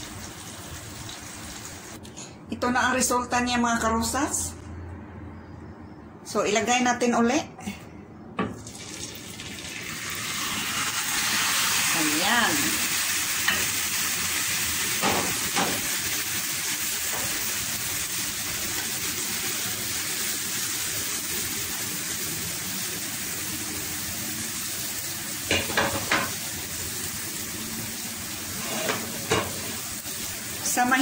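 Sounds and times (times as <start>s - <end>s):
omelette sizzling in a pan: 8.7s - 31.0s.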